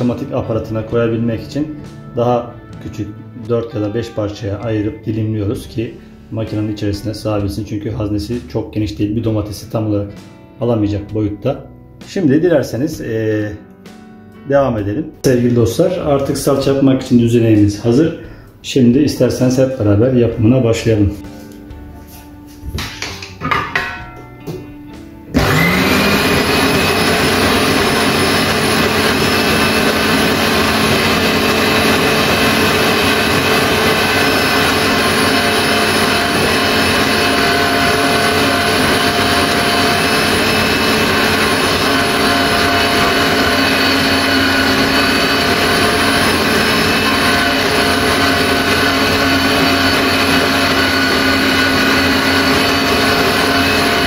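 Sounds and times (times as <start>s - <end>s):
electric meat grinder running: 25.3s - 54.0s.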